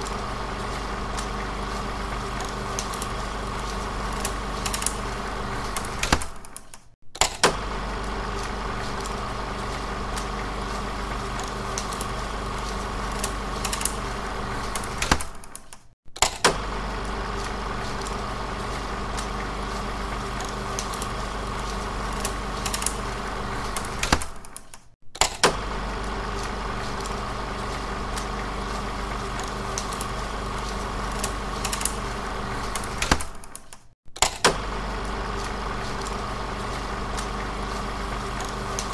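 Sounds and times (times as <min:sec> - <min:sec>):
film projector humming: 0:00.0 - 0:06.6, 0:07.2 - 0:15.6, 0:16.2 - 0:24.6, 0:25.2 - 0:33.6, 0:34.2 - 0:38.9
click: 0:06.1 - 0:07.4, 0:15.4 - 0:16.4, 0:24.4 - 0:25.4, 0:33.1 - 0:34.5.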